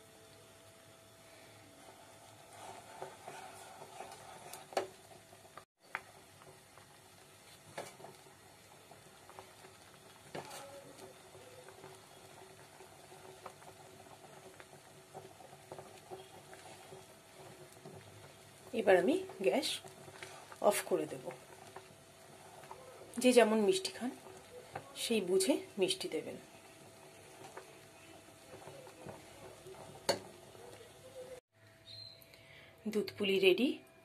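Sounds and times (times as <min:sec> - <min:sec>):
milk bubbling in a pan: 0:00.1 - 0:32.2
spatula tapping a pan: 0:26.9 - 0:31.0.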